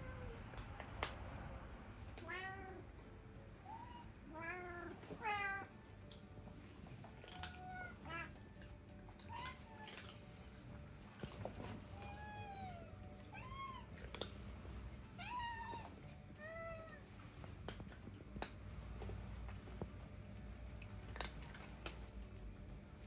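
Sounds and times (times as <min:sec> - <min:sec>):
cat meowing: 0:07.3 - 0:08.4, 0:12.0 - 0:14.1.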